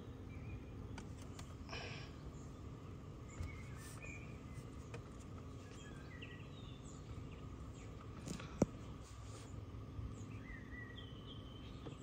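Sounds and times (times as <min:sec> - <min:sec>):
faint background noise: 0:00.0 - 0:12.0.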